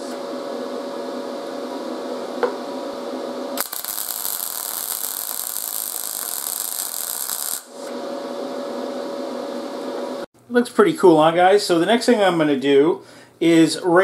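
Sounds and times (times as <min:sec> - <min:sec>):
steady hum with faint tone: 0:00.0 - 0:14.0
welding arc crackling and hissing: 0:03.6 - 0:07.9.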